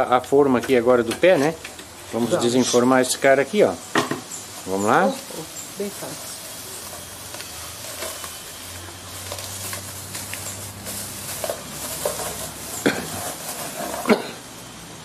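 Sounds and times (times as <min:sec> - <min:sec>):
plastic sheeting rustling: 0:04.5 - 0:14.5.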